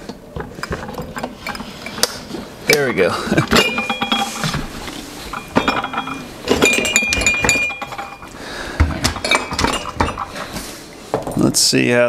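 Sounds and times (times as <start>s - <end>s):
mugs clinking in drawer: 0.5s - 8.4s, 9.0s - 10.5s.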